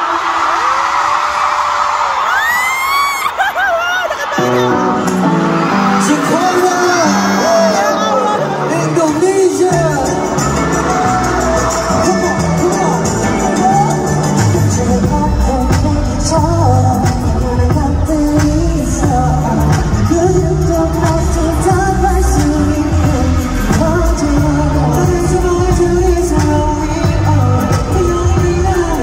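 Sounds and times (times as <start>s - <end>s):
pop backing track with bass: 4.4s - 29.0s
men singing: 5.9s - 29.0s.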